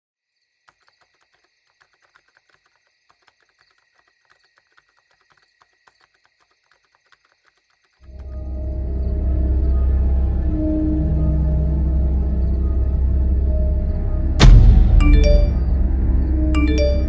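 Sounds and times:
crickets chirping: 0.3s - 17.0s
deep ominous music swell: 8.1s - 17.0s.

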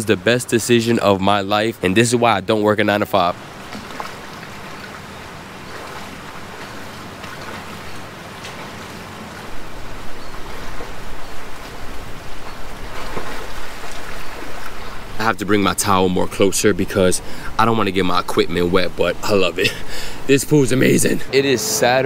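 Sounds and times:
water splashing from swimmer: 3.5s - 9.7s, 10.5s - 15.0s.

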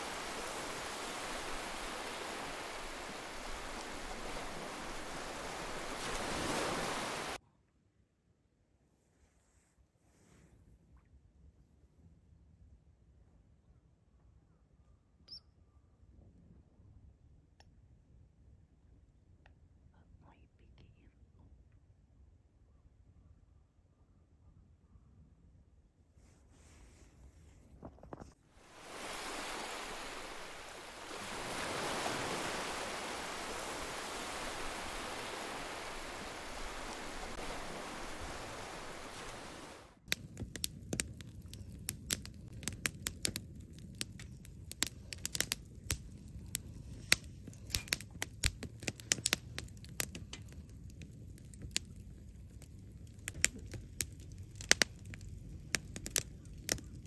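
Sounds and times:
steady rushing hiss: 0.0s - 7.4s, 28.6s - 43.5s
wood fire crackling and popping: 39.0s - 57.0s.

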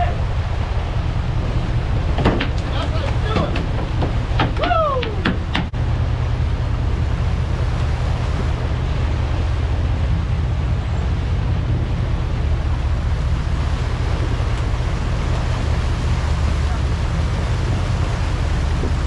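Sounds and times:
boat engines droning: 0.0s - 19.0s
rush of boat wake: 0.0s - 19.0s
wind on the microphone: 0.0s - 19.0s.

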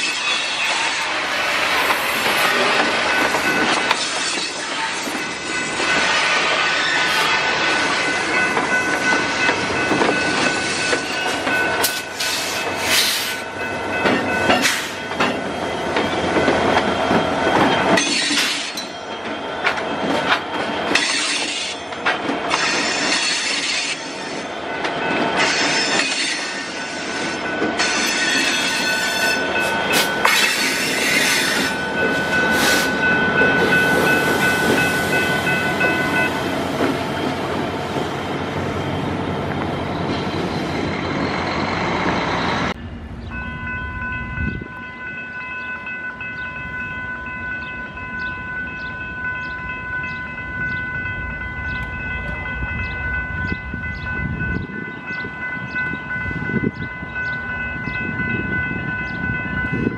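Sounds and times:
high wheel squeal: 0.0s - 8.2s.

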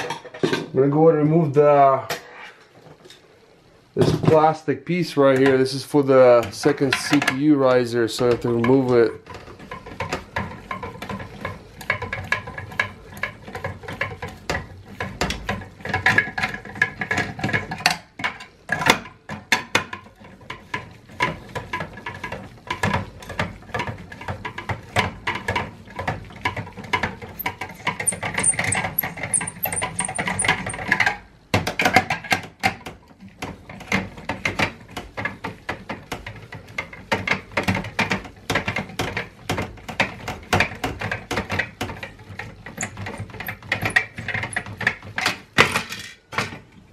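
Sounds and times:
screwdriver clicking and scraping in screw: 27.4s - 31.0s, 42.8s - 44.7s.

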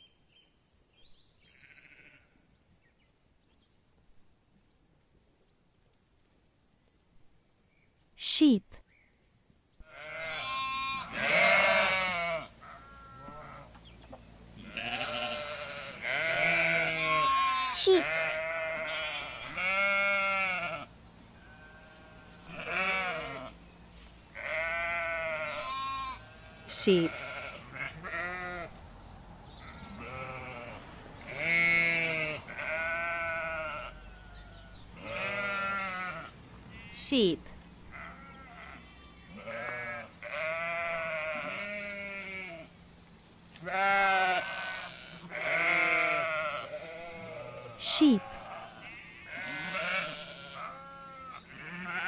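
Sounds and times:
sheep bleating: 1.5s - 2.4s, 9.9s - 13.7s, 14.6s - 23.6s, 24.4s - 28.7s, 29.6s - 37.0s, 37.9s - 42.7s, 43.6s - 52.0s.

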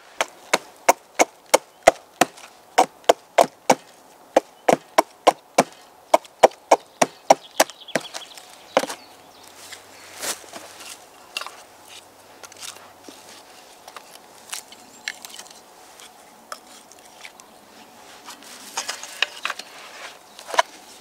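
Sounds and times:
wooden stakes clacking together: 7.6s - 17.5s, 18.2s - 21.0s.

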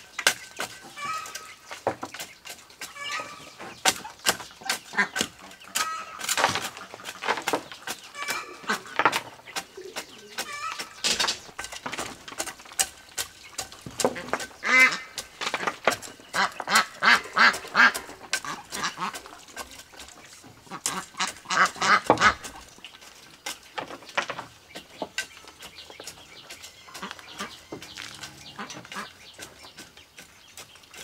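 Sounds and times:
spade scraping dry soil: 0.0s - 23.7s, 25.1s - 31.0s
ducks quacking: 0.8s - 1.9s, 2.8s - 11.3s, 13.5s - 22.8s, 26.4s - 29.7s.

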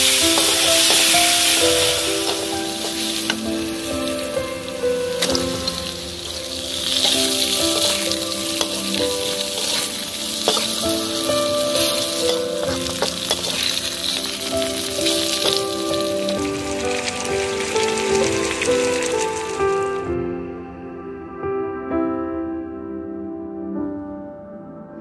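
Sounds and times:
food sizzling in a wok: 0.0s - 20.1s
background music: 0.0s - 25.0s
metal spatula scraping pan: 5.2s - 11.2s.

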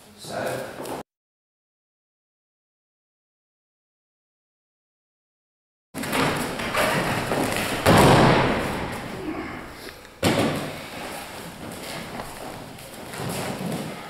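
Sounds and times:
body thudding on padded mat: 6.0s - 9.2s.

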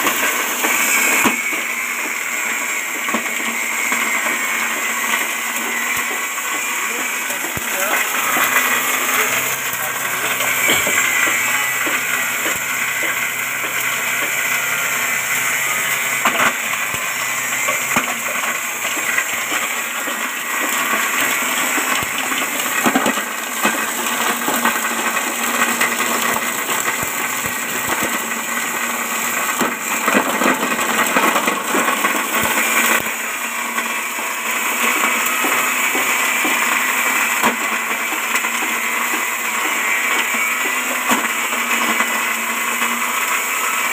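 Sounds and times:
grinder whirring rush: 0.0s - 43.9s.

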